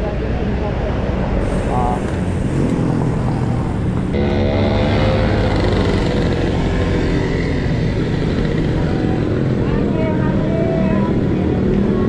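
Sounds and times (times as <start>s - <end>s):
wind buffeting microphone: 1.4s - 4.2s
vehicle engine humming: 1.4s - 8.6s.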